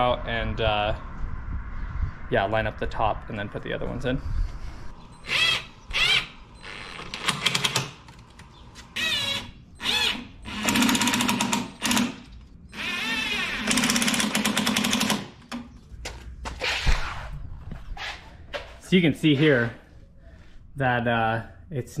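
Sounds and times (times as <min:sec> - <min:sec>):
impact driver hammering rattle: 0:10.0 - 0:12.3, 0:13.5 - 0:15.4.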